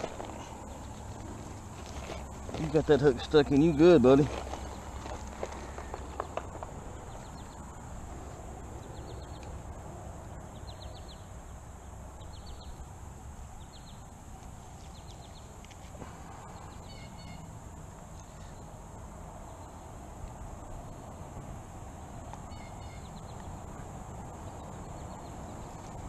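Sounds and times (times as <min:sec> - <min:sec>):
low outdoor rush: 0:00.0 - 0:26.0
high shrill insect drone: 0:22.5 - 0:23.2.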